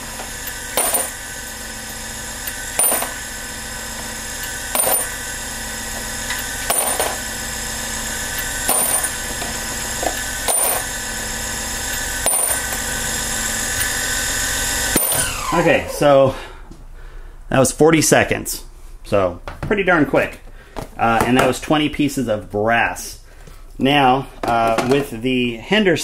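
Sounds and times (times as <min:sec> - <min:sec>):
cutter trimming brass cases: 0:00.0 - 0:16.0
motor humming: 0:00.0 - 0:16.7.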